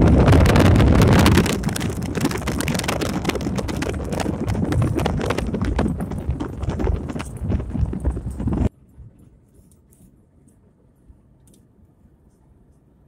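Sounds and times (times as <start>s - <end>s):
wind buffeting microphone: 0.0s - 8.7s
road noise: 0.0s - 13.0s
rapid clicking rattle: 0.8s - 8.7s.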